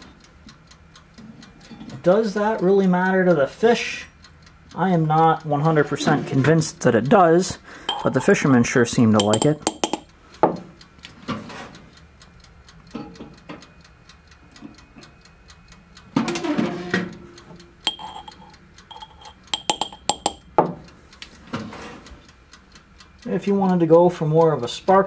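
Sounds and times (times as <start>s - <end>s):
pliers clinking against glass jar: 9.2s - 10.0s, 17.9s - 20.4s.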